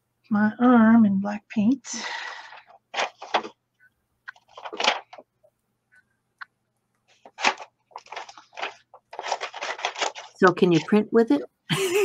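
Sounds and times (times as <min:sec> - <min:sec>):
paper rustling: 0:02.5 - 0:03.6, 0:04.3 - 0:05.3, 0:07.0 - 0:11.1.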